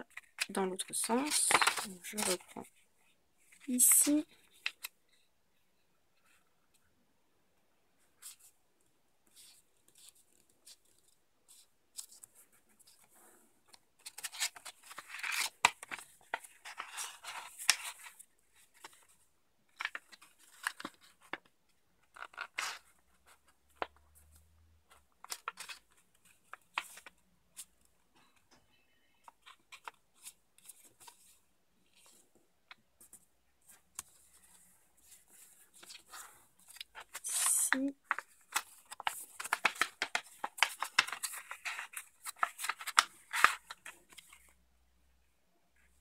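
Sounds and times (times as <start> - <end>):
paper crackling and rustling: 0.1 - 2.7, 13.7 - 24.4, 29.2 - 44.5.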